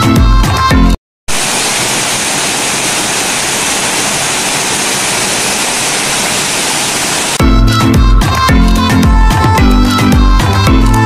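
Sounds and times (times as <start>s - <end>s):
waterfall rushing: 1.3s - 7.4s.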